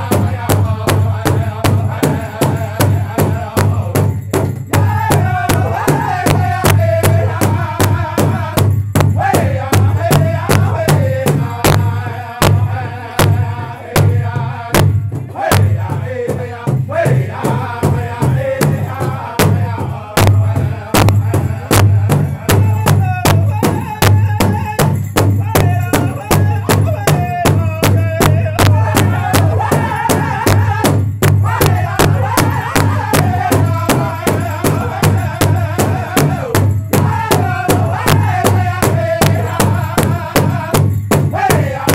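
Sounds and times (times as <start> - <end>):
large drum beating: 0.0 - 41.9
men singing in high voices: 0.0 - 41.9.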